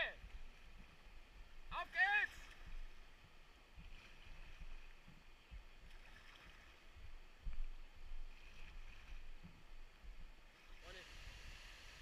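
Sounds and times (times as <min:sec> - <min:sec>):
rushing white water: 0:01.6 - 0:02.7, 0:10.6 - 0:12.0.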